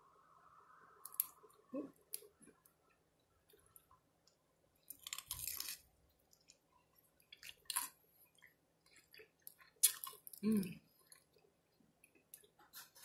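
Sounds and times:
person chewing crunchy food: 4.8 - 11.5.

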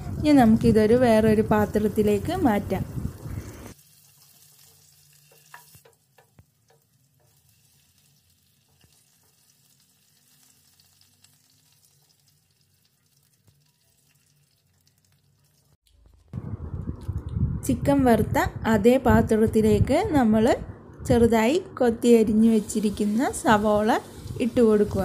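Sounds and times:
chicken sizzling in hot oil: 3.1 - 15.8, 22.5 - 25.0
spatula tapping and scraping: 4.6 - 7.4.

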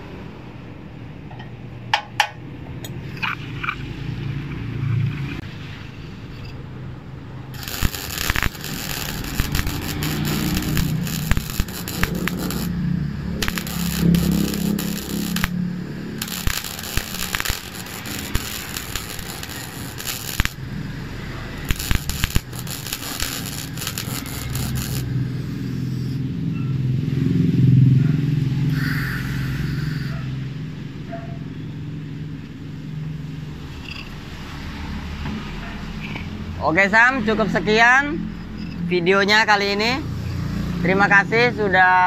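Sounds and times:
passing road traffic rumble: 0.0 - 42.0
welder arc crackling: 7.5 - 26.2.

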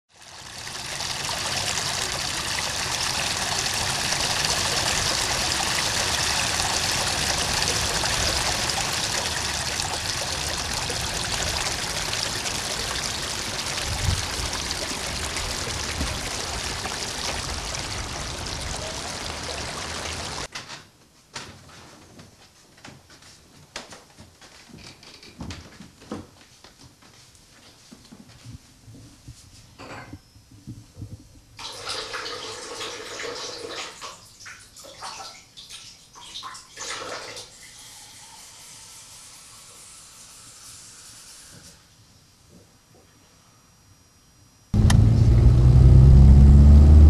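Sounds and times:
water hissing: 0.3 - 20.5.

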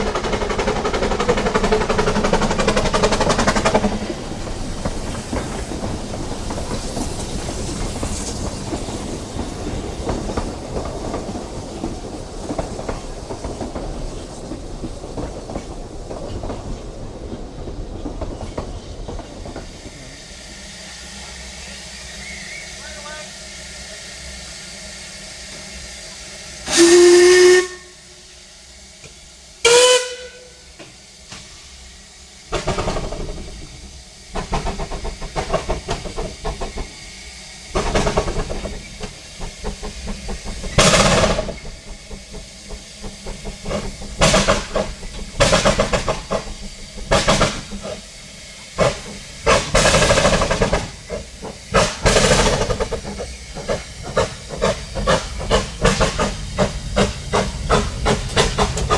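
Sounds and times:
steam locomotive chuffing: 0.0 - 58.9
steam whistle toots: 21.6 - 24.0, 26.6 - 28.4, 29.6 - 30.8.

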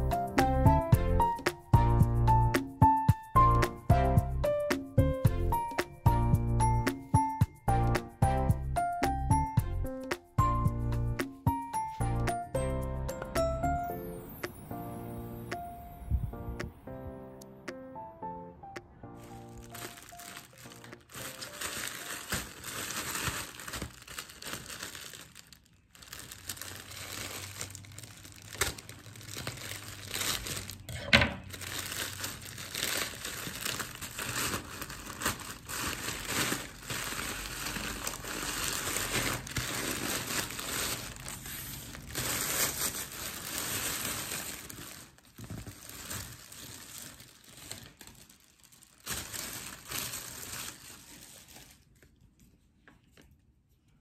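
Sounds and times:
plastic mailer bag crinkling: 19.2 - 52.1
foil wrapper crinkling: 19.2 - 52.4.

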